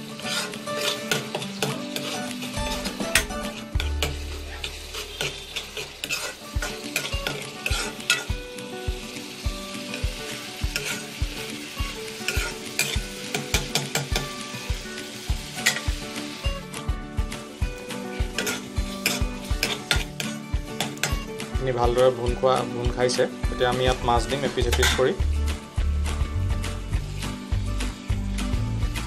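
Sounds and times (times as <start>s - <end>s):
metal spoon scraping a pan: 0.0s - 8.4s, 9.8s - 16.6s, 18.0s - 21.4s, 24.3s - 25.2s
masala sizzling in oil: 0.0s - 29.0s.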